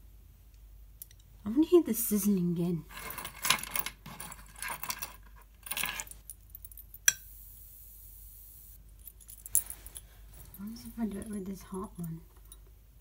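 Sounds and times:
high electric sizzle: 7.1s - 8.8s.

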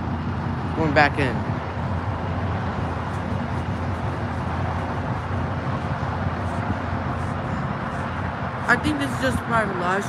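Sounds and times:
diesel locomotive rumbling: 0.0s - 10.0s.

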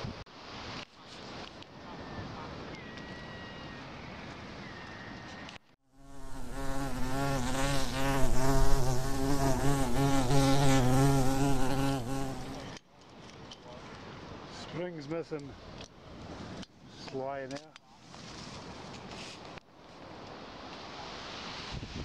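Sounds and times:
wind: 0.0s - 22.0s
flying insect buzzing: 5.9s - 12.8s.

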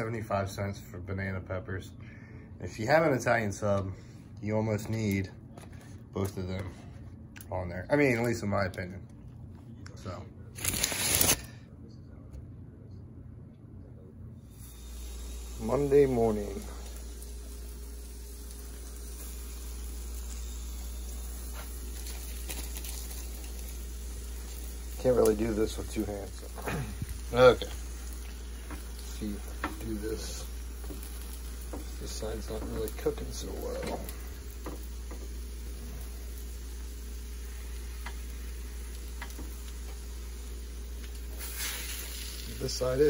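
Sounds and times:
constant low hum: 0.0s - 43.0s
eggs and sausages sizzling: 14.5s - 43.0s
spatula scraping griddle: 24.3s - 35.4s, 41.3s - 42.9s.

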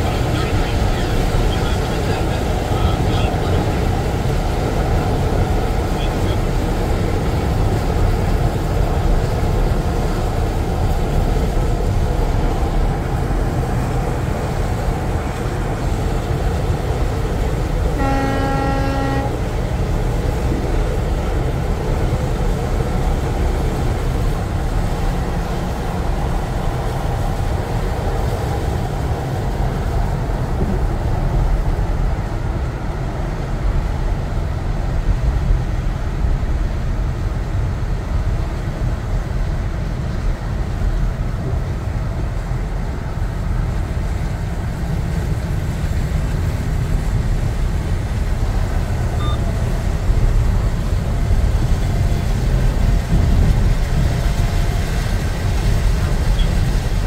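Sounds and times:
road noise: 0.0s - 57.0s
snowplow trucks rumbling: 0.0s - 57.0s
wind buffeting microphone: 0.0s - 57.0s
truck horn blast: 17.9s - 19.5s.

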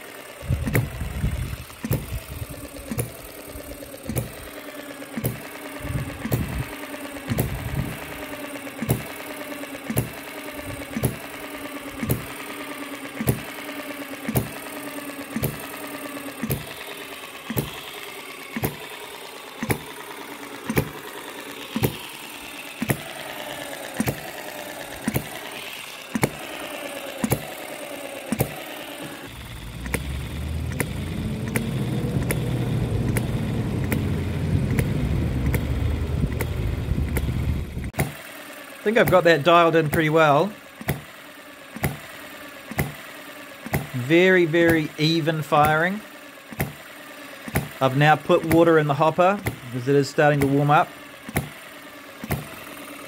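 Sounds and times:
model engine popping: 0.0s - 53.0s
steady low rumble: 29.3s - 37.9s.

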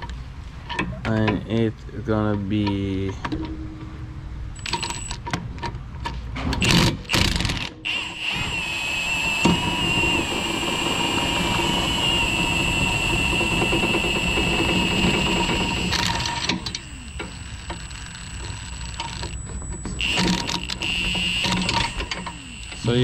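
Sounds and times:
tool clicks and clatters: 4.6s - 23.0s
impact wrench running: 6.6s - 23.0s.

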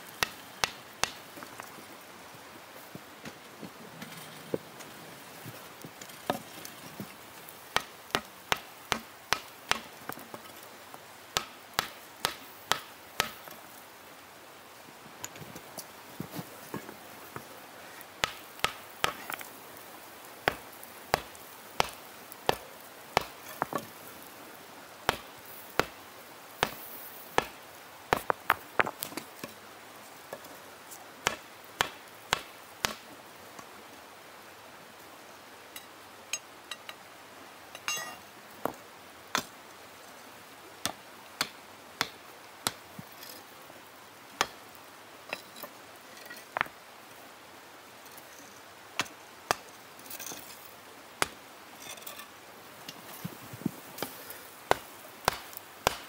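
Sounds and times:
hammer striking hot iron: 21.2s - 22.6s, 54.7s - 56.0s.

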